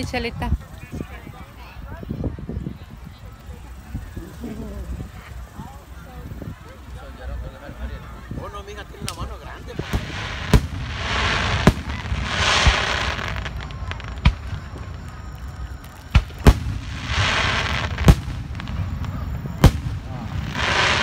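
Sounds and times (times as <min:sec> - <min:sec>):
fireworks crackling: 0:02.7 - 0:21.0
fireworks bangs: 0:09.0 - 0:21.0.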